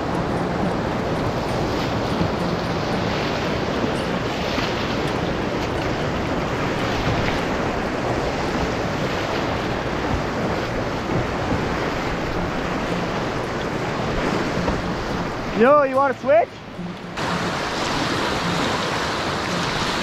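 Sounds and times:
wind buffeting microphone: 0:00.0 - 0:15.6
whitewater rapids rushing: 0:00.0 - 0:20.0.

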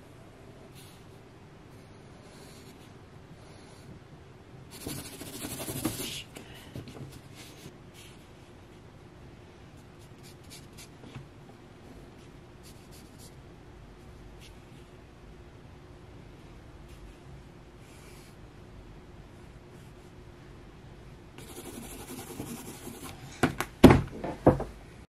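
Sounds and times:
pen scratching on paper: 0:04.7 - 0:06.2, 0:21.4 - 0:23.2.

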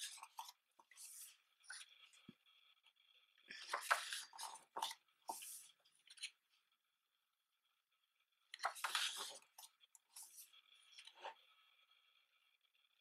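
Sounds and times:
paper pages rustling: 0:00.0 - 0:02.3, 0:03.5 - 0:06.3, 0:08.6 - 0:11.4.

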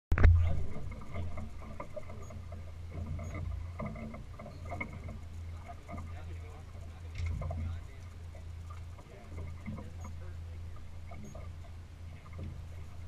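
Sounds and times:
boat engine rumbling: 0:00.1 - 0:13.0
small knocks and clicks: 0:00.2 - 0:06.2, 0:07.1 - 0:10.0.

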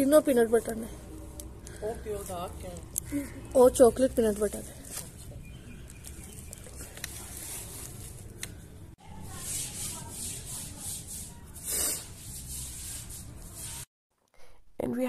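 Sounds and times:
bubble wrap rustling: 0:04.2 - 0:08.6.

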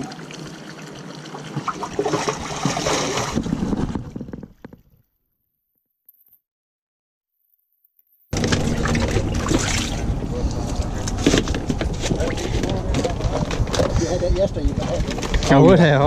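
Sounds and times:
water sloshing and splashing: 0:00.0 - 0:05.0, 0:08.3 - 0:14.0.

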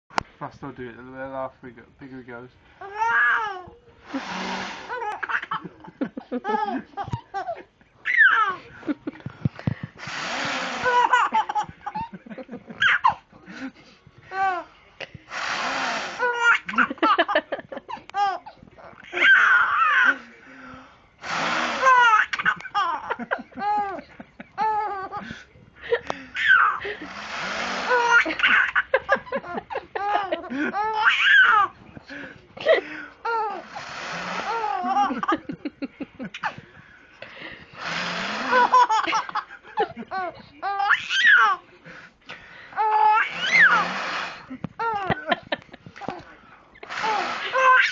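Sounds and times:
baby laughing: 0:02.8 - 0:08.6, 0:10.4 - 0:12.2, 0:12.8 - 0:13.2, 0:16.2 - 0:17.2, 0:18.0 - 0:20.2, 0:21.8 - 0:25.3, 0:26.1 - 0:27.0, 0:27.8 - 0:31.8, 0:34.4 - 0:35.5, 0:38.4 - 0:41.6, 0:42.8 - 0:43.9, 0:44.8 - 0:45.4, 0:47.0 - 0:47.9
infant giggling: 0:03.0 - 0:13.2, 0:21.8 - 0:27.1, 0:27.8 - 0:31.8, 0:34.4 - 0:36.6, 0:44.7 - 0:46.2
breathy whoosh: 0:04.0 - 0:05.0
baby breathing: 0:04.0 - 0:05.4, 0:09.2 - 0:12.0, 0:25.1 - 0:28.4, 0:30.5 - 0:34.9, 0:41.8 - 0:44.6, 0:46.0 - 0:47.9.

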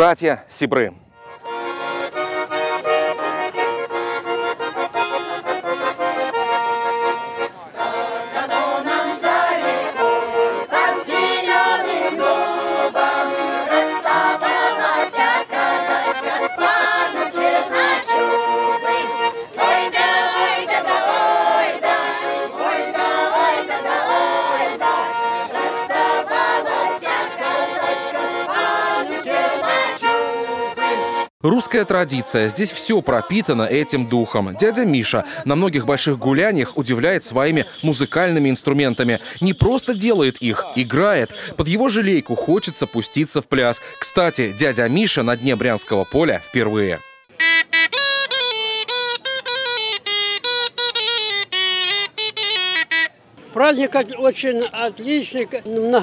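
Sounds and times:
button accordion folk tune: 0:01.1 - 0:53.4
voices singing along: 0:02.5 - 0:35.0.

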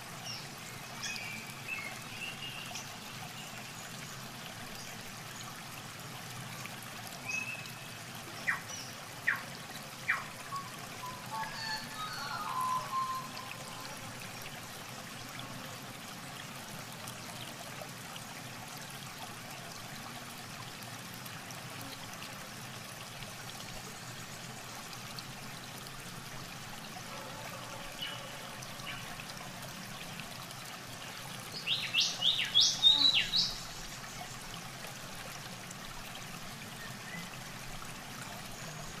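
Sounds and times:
trickle of shallow water: 0:00.0 - 0:39.0.

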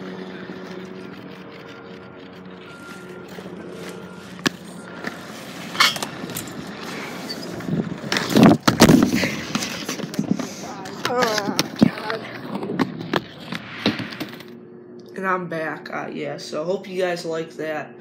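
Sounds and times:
bike tyres rolling on concrete: 0:00.0 - 0:10.5.

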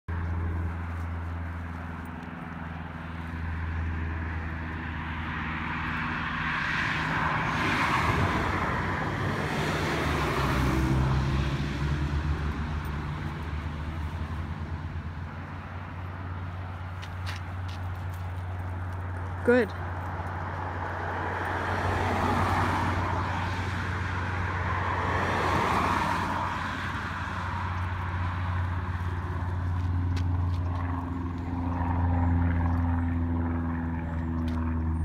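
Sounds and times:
low engine hum: 0:00.1 - 0:35.0
car driving past: 0:03.2 - 0:16.4.

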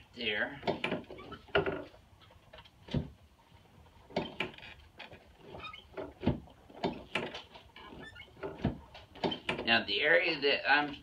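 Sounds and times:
spine knocks and pops: 0:02.6 - 0:03.2, 0:05.9 - 0:07.7, 0:08.3 - 0:09.7.

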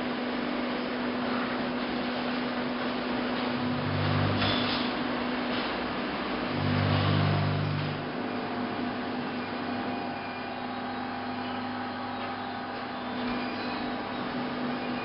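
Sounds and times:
machinery electric hum: 0:00.0 - 0:15.0
deep motor drone: 0:03.4 - 0:05.1, 0:06.2 - 0:08.2.

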